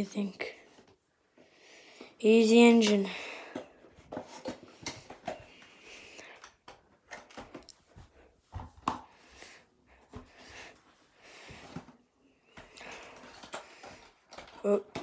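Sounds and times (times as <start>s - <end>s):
handling cardboard and plastic packaging: 3.5s - 9.0s, 11.4s - 15.0s.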